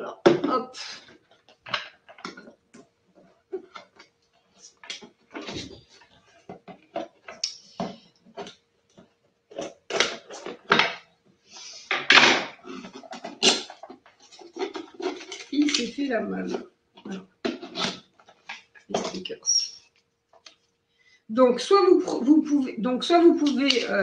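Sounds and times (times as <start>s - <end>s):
paper rustling and crinkling: 12.7s - 19.3s.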